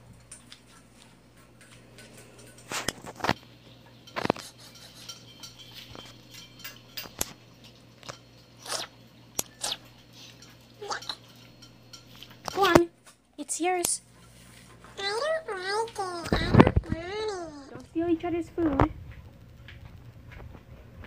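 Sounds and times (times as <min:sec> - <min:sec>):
bowl clinking on tile floor: 0:01.5 - 0:08.5, 0:09.4 - 0:12.8.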